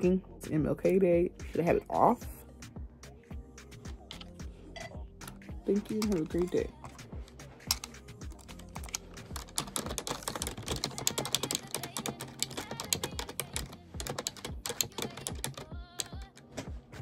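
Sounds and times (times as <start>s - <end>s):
computer keyboard typing: 7.7s - 16.5s.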